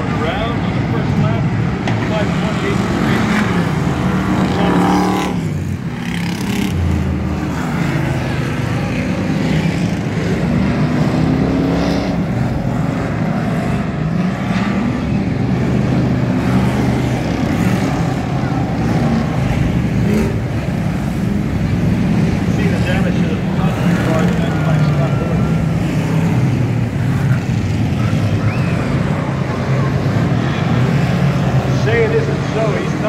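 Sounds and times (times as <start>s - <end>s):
racing car engines passing: 0.0s - 33.0s.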